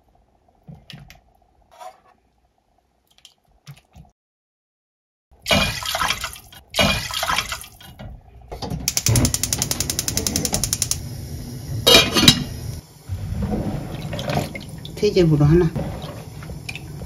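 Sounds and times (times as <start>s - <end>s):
water splashing into pot: 5.5s - 7.8s, 13.8s - 15.2s.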